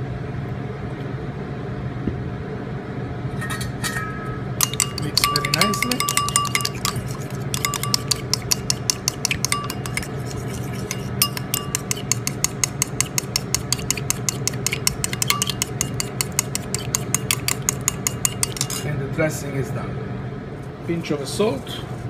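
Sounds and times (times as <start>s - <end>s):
metal spoon stirring in bowl: 4.6s - 18.9s.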